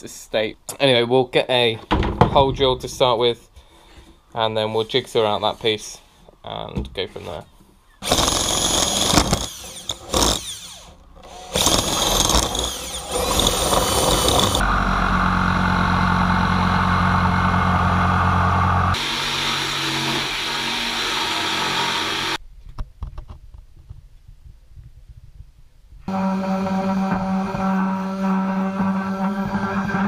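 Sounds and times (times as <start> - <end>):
cordless drill boring plywood: 8.0 - 22.4, 26.1 - 30.0
jigsaw cutting plywood: 8.0 - 22.4, 26.1 - 30.0.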